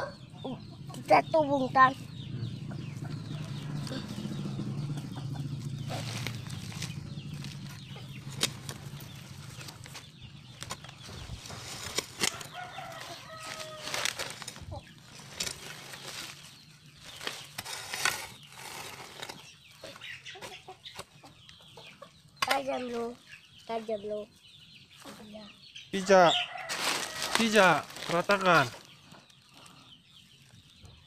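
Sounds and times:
soil being scraped: 0:05.7 - 0:10.0, 0:10.6 - 0:20.0.

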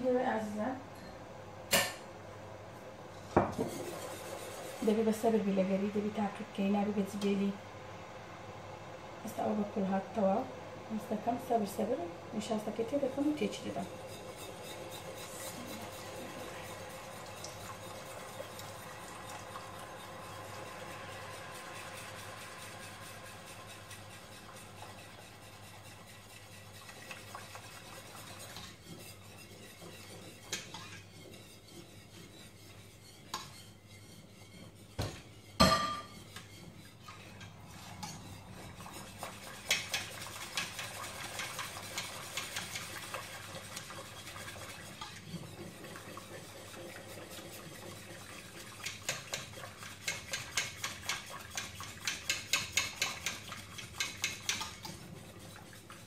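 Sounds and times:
utensil stirring in steel pot: 0:03.2 - 0:07.2, 0:09.3 - 0:56.0.

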